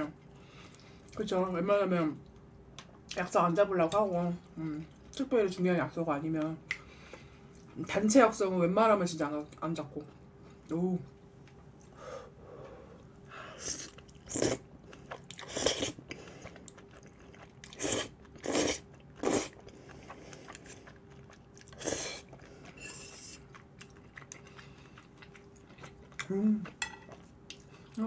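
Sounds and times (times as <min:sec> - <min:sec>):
chewing and slurping noodles: 0:13.6 - 0:28.0.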